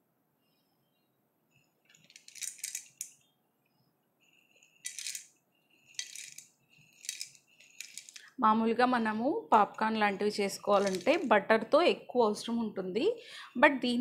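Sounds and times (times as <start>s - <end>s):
popcorn kernels rattling in bowl: 1.9s - 3.2s, 4.3s - 8.3s, 9.6s - 11.4s.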